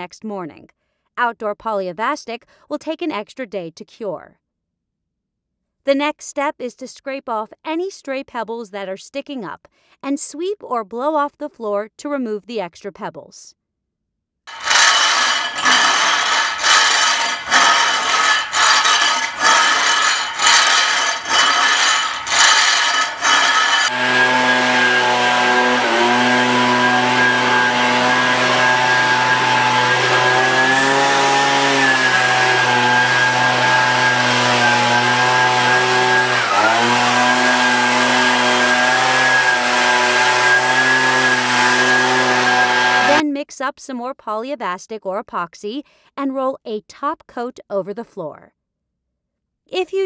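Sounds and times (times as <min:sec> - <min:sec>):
leaf blower running: 0:14.5 - 0:43.2
scraper rasping across floor: 0:14.5 - 0:43.2.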